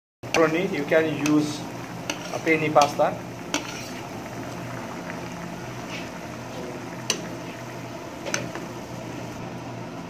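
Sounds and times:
soup bubbling in a pan: 0:00.2 - 0:10.0.

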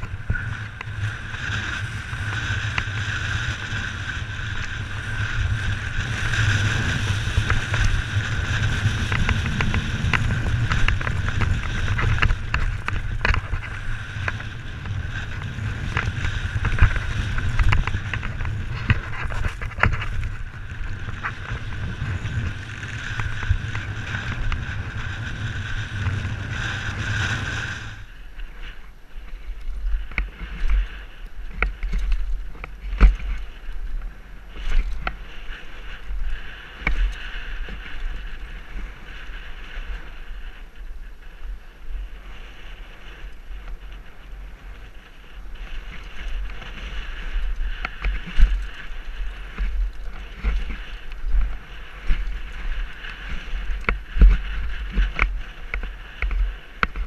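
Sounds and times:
bike chain and frame rattling: 0:00.0 - 0:40.6, 0:42.4 - 0:57.0
bike tyres rumbling on gravel: 0:00.0 - 0:57.0
wind rushing over microphone: 0:00.0 - 0:57.0.

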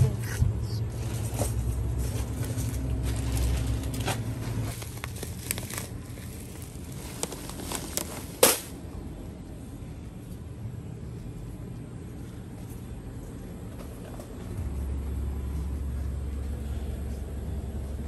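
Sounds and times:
low steady hum: 0:00.0 - 0:18.0
plastic crinkling and clicks: 0:04.7 - 0:08.7.

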